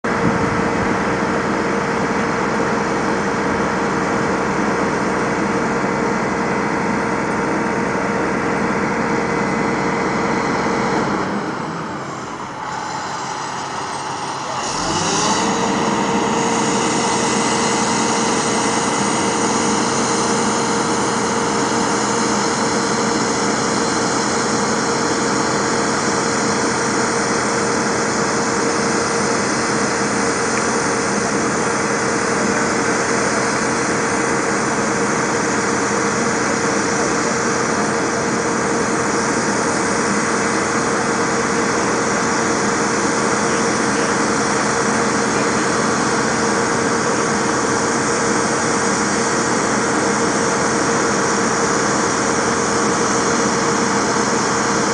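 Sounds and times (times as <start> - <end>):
diesel engine humming: 0.1 - 54.9.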